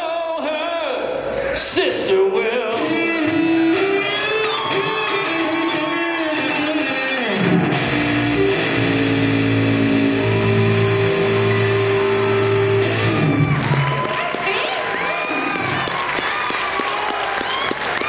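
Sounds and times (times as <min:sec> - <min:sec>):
electric guitar notes: 0:02.8 - 0:14.2
live rock band: 0:02.8 - 0:14.3
low bass notes: 0:06.2 - 0:14.0.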